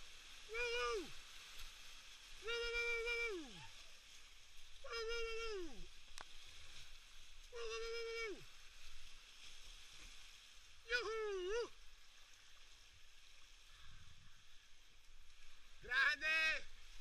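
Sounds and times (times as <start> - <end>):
faint rush of whitewater: 0.0 - 17.0
person whooping: 0.5 - 1.2, 2.4 - 3.8, 4.8 - 5.9, 7.5 - 8.5, 10.9 - 11.8.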